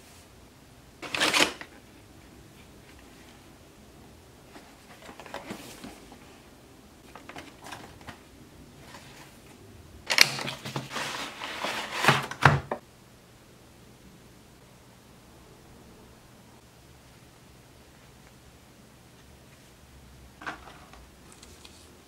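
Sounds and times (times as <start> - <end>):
plastic case crinkling and scraping: 4.5 - 6.3, 7.0 - 8.2, 10.1 - 12.5.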